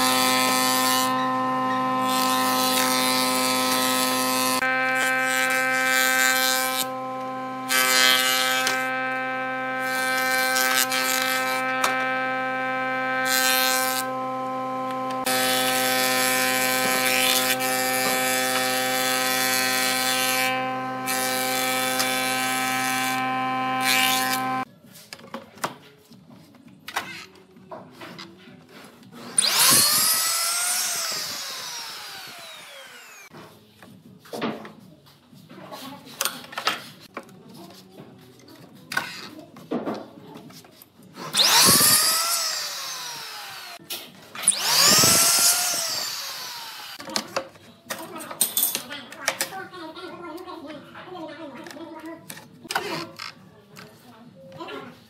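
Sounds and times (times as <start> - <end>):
planer motor hum: 0.0 - 24.6, 29.4 - 33.3, 41.4 - 43.8, 44.4 - 47.0
planer cutting boards: 0.0 - 24.7, 29.2 - 33.3, 41.2 - 47.1.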